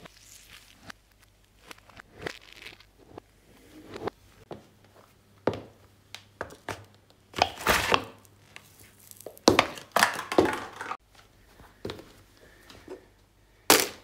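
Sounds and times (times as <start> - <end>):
paper cups crumpling underfoot: 7.5 - 11.0.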